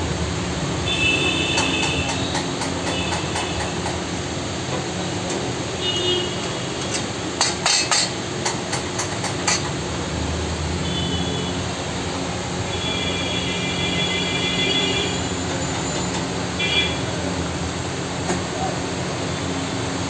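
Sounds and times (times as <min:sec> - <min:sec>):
road noise: 0:00.0 - 0:20.0
metal utensils clinking on pan: 0:06.8 - 0:09.7.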